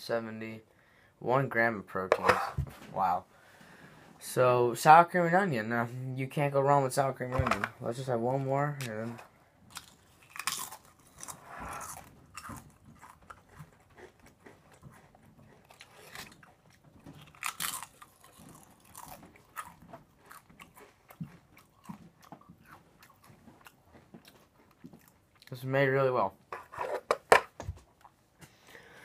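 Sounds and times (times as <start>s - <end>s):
potato crisp crunching: 9.7s - 25.6s.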